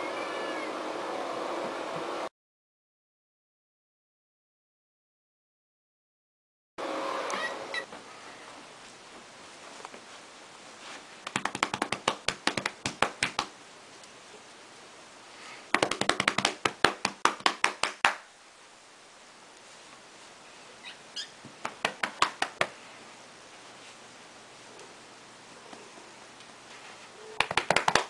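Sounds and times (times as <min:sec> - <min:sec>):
hands patting a cat rapidly: 0:11.3 - 0:13.6, 0:15.7 - 0:18.2, 0:21.5 - 0:22.8, 0:27.4 - 0:28.0.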